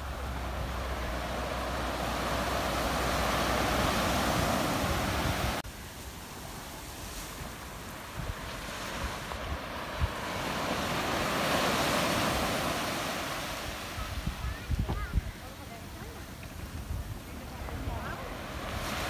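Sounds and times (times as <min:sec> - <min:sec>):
wind on microphone: 0:00.0 - 0:05.6, 0:06.7 - 0:19.0
surf breaking on a beach: 0:00.0 - 0:19.0.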